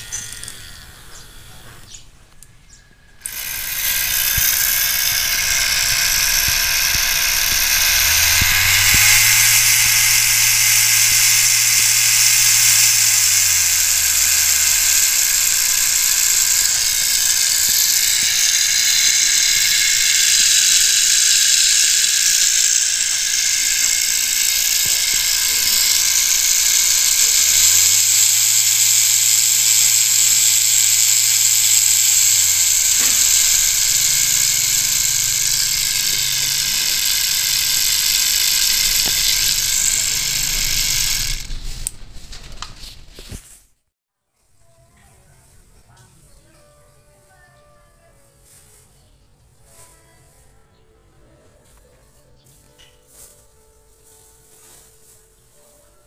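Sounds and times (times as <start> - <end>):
tattoo machine buzzing: 0.0 - 2.0, 3.2 - 42.0.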